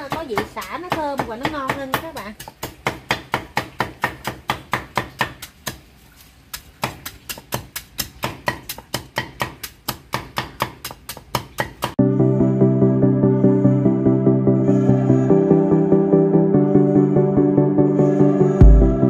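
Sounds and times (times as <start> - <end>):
cleaver chopping on wooden board: 0.0 - 5.8, 6.5 - 12.0.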